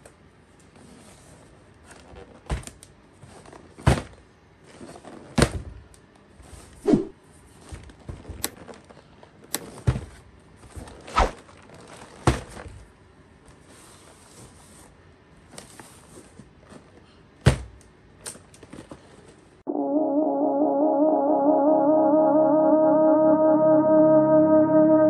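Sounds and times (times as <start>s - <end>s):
thunks and knocks of box handling: 3.7s - 4.2s, 9.7s - 11.0s, 12.0s - 12.8s, 17.5s - 17.8s.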